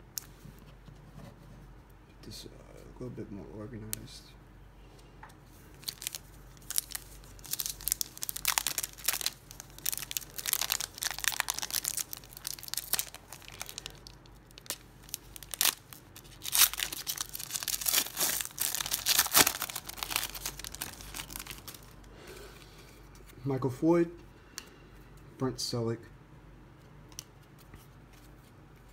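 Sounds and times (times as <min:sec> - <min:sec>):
foil card pack crinkling: 0:05.7 - 0:22.1.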